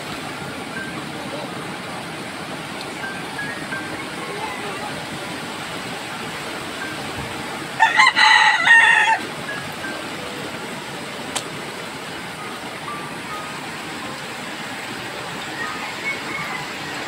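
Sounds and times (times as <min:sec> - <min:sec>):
fast-flowing floodwater: 0:00.0 - 0:17.0
rooster crowing: 0:07.8 - 0:09.3, 0:16.0 - 0:17.0.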